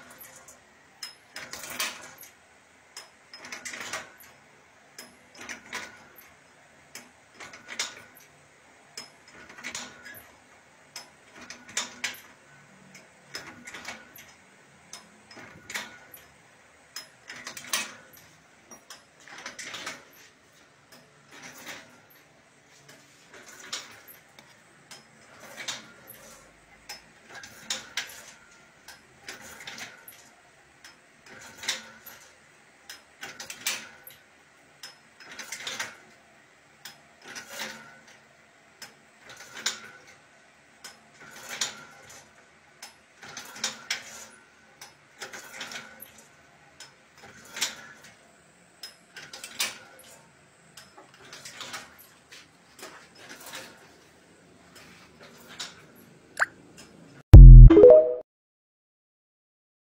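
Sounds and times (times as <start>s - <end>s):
machine mechanism clicking and clacking: 0.0s - 20.3s, 20.9s - 22.3s, 22.9s - 32.3s, 32.9s - 36.1s, 36.8s - 38.2s, 38.8s - 40.2s, 40.8s - 48.2s.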